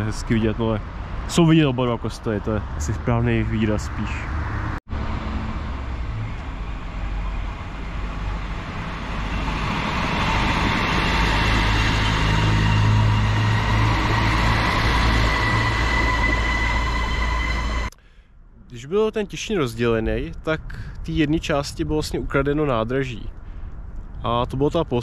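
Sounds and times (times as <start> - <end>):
diesel railcar engine drone: 0.0 - 24.4
high whine: 5.0 - 22.6.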